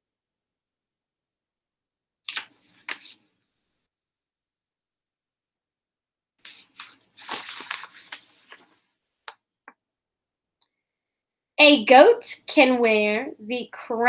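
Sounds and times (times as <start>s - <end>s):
book pages rustling: 2.3s - 3.3s, 6.4s - 9.0s.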